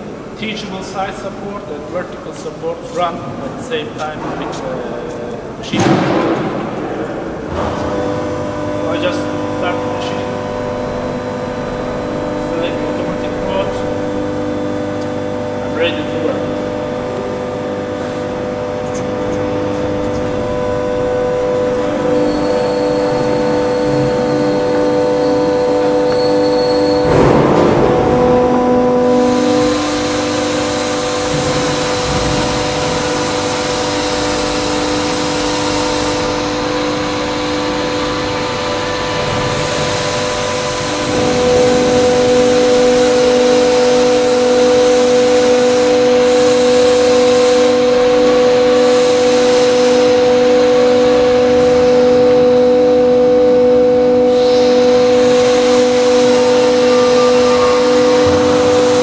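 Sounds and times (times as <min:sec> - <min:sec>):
hydraulic system whining: 0:00.0 - 0:59.0
low hum: 0:05.5 - 0:43.5.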